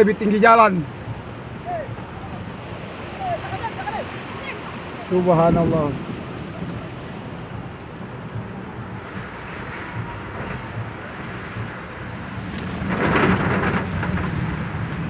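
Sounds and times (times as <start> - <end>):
car engine rumble: 0.0 - 15.0
heavy rain on a car: 0.0 - 15.0
water rushing: 0.0 - 15.0.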